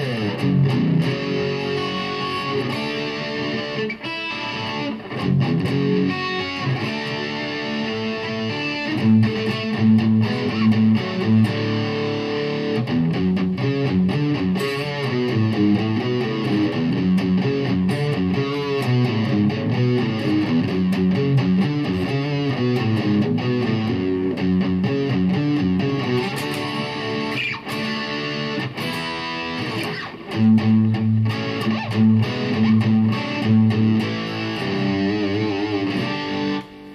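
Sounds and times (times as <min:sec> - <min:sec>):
distorted electric guitar: 0:00.0 - 0:36.9.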